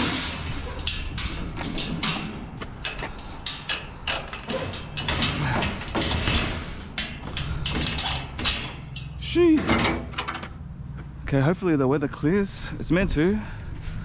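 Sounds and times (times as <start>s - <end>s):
sharp knocks clicks and rattles: 0.0s - 10.6s.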